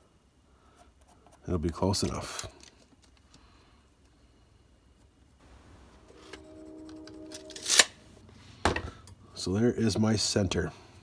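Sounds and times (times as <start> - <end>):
faint steady hum: 0.0 - 11.0
tape measure and pencil handling: 6.3 - 7.9.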